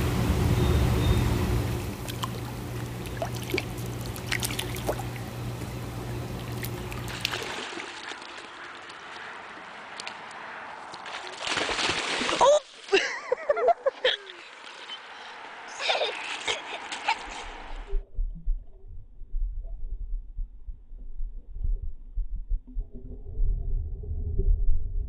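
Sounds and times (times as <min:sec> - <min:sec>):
low mechanical hum: 0:00.0 - 0:07.6
water splashing and trickling: 0:01.7 - 0:17.6.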